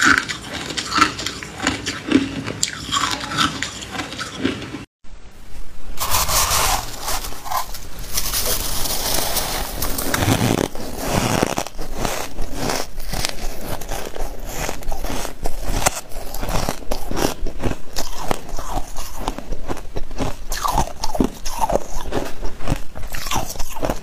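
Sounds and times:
hard ice being chewed: 0:00.0 - 0:04.9, 0:06.0 - 0:24.0
shaved ice crunching: 0:06.0 - 0:22.3.

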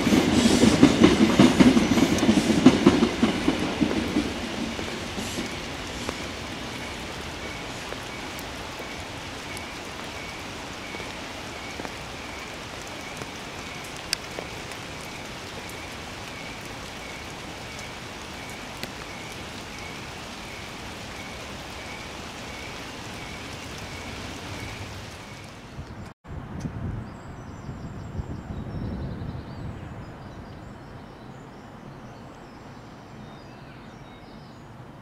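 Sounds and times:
steady rain: 0:00.0 - 0:26.2.

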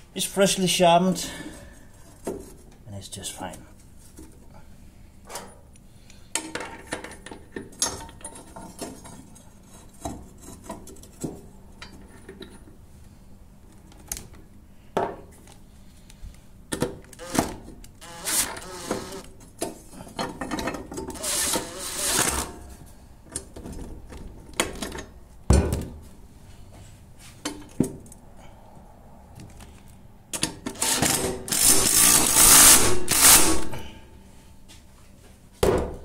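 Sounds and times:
impact wrench hammering: 0:18.1 - 0:19.2, 0:30.8 - 0:33.7.

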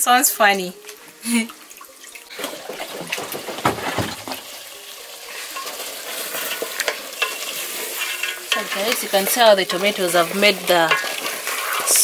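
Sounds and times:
metal pot knocking and clinking: 0:02.8 - 0:04.6, 0:06.7 - 0:09.0
meat sizzling in a pot: 0:04.4 - 0:12.0.

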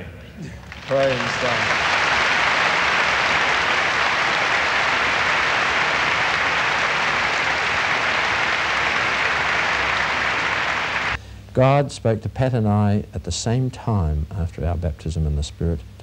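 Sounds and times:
audience applauding: 0:00.6 - 0:11.2.

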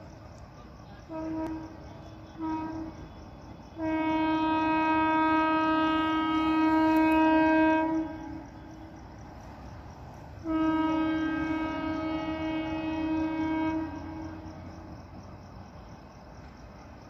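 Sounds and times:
train coaches rumbling on track: 0:00.0 - 0:17.0
train horn blasts: 0:01.0 - 0:09.5, 0:10.3 - 0:14.9.

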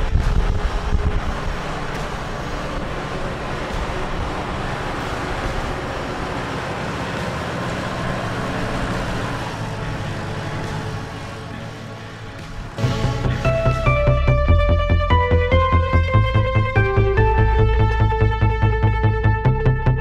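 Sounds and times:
wind buffeting microphone: 0:00.0 - 0:04.4
tractor diesel engine running: 0:00.0 - 0:20.0.

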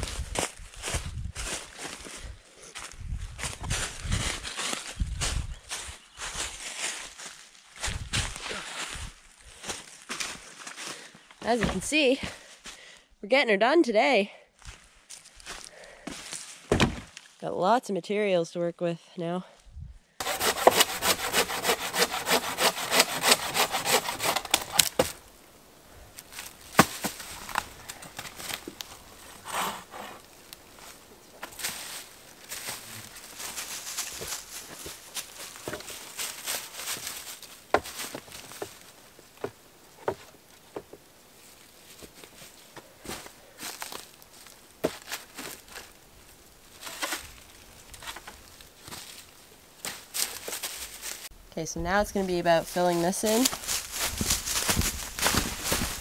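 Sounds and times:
dry leaves and sticks crunching: 0:00.0 - 0:11.8, 0:14.6 - 0:17.4, 0:26.1 - 0:29.5, 0:30.2 - 0:51.3, 0:52.6 - 0:56.0
hand saw cutting wood: 0:20.2 - 0:25.1, 0:29.3 - 0:30.2.

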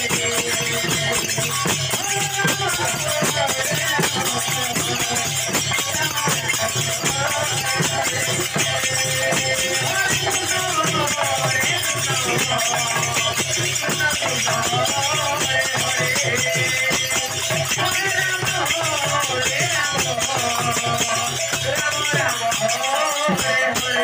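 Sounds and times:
hand cymbals jingling: 0:00.0 - 0:24.0
voices singing: 0:00.0 - 0:24.0.

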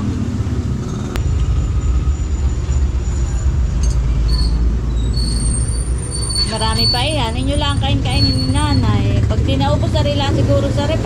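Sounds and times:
loud low rumble: 0:00.0 - 0:05.2.

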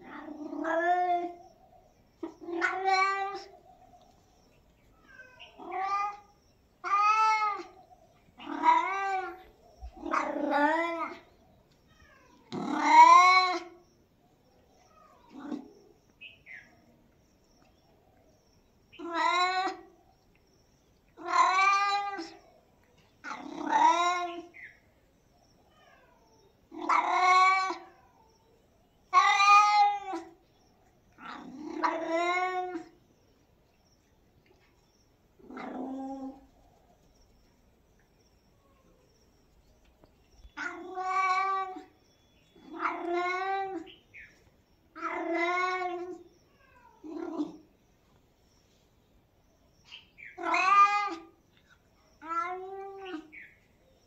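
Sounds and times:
cat meowing: 0:02.2 - 0:03.5, 0:05.0 - 0:07.8, 0:08.4 - 0:11.3, 0:11.9 - 0:13.8, 0:19.0 - 0:19.9, 0:21.2 - 0:22.4, 0:25.7 - 0:28.2, 0:29.1 - 0:30.3, 0:31.2 - 0:33.0, 0:40.5 - 0:42.0, 0:42.6 - 0:43.9, 0:44.9 - 0:47.6, 0:50.3 - 0:51.4, 0:52.2 - 0:53.3.

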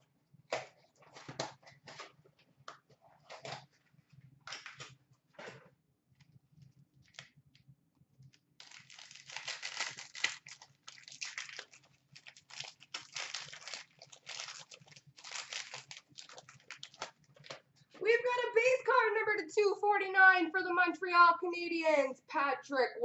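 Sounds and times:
wrapper crinkling and tearing: 0:07.0 - 0:07.3, 0:08.6 - 0:17.7.

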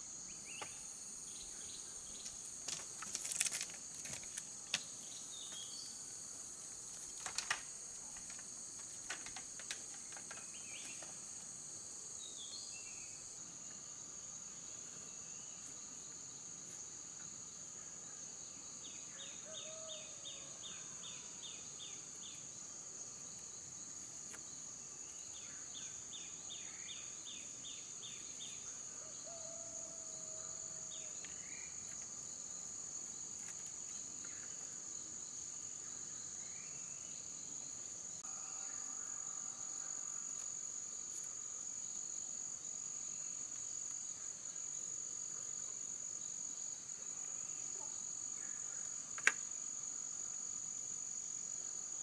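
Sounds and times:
crickets chirping: 0:00.0 - 0:52.0.

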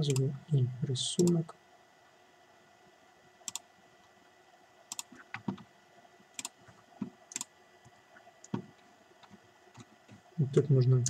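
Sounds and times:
computer mouse clicks: 0:03.4 - 0:03.7, 0:04.9 - 0:05.6, 0:06.4 - 0:06.6, 0:07.3 - 0:07.5.

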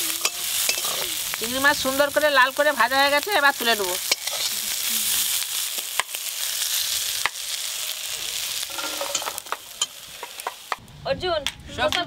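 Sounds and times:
prawns sizzling in hot oil: 0:00.0 - 0:10.8
metal spatula knocking wok: 0:08.7 - 0:10.8.

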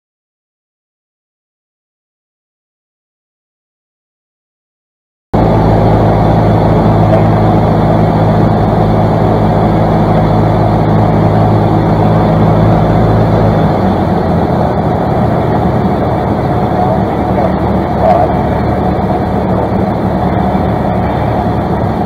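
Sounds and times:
airplane engine and propeller drone: 0:05.4 - 0:22.0.

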